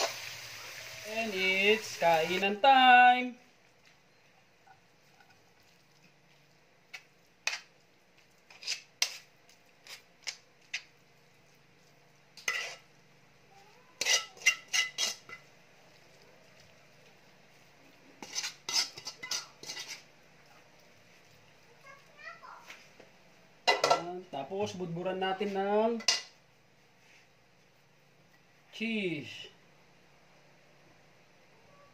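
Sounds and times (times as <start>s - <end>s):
metal spoon clinking on pan and plate: 12.4s - 12.9s, 14.0s - 15.5s, 18.2s - 20.0s, 23.7s - 24.1s, 26.0s - 26.4s.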